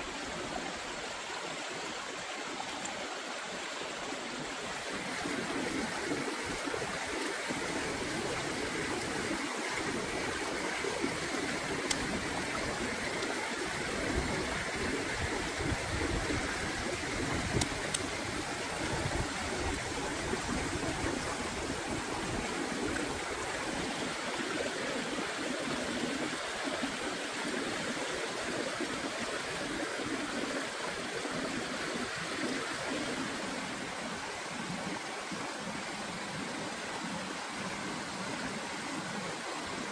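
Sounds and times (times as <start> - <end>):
stream running over rocks: 0.0 - 39.9
faint clicks: 11.1 - 13.4, 17.4 - 18.3.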